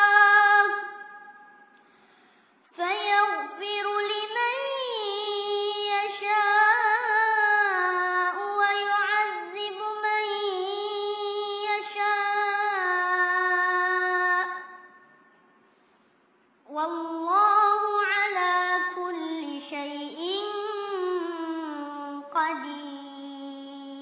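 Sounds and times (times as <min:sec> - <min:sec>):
person chanting recitation: 0:00.0 - 0:01.4, 0:02.7 - 0:14.8, 0:16.7 - 0:24.0.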